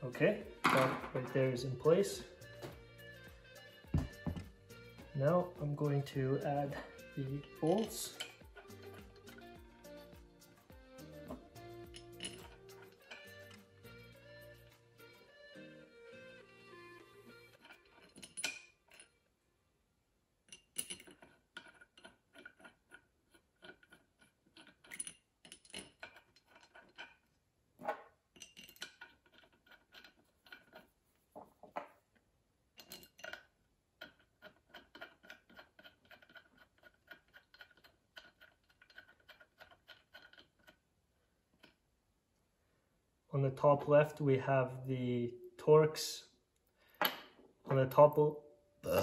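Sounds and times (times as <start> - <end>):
metal bolts clicking and tapping: 5.5 - 10.2, 11.0 - 14.1, 17.5 - 19.2, 20.4 - 32.0, 32.8 - 40.8.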